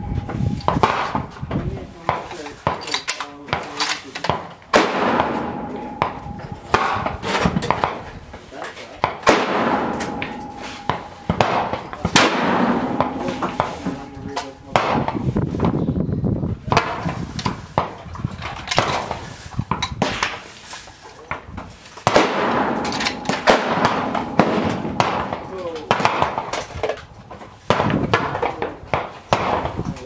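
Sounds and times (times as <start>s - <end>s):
rifle shots: 0.7s - 1.3s, 4.7s - 8.0s, 9.2s - 15.2s, 22.0s - 26.8s, 27.6s - 29.8s.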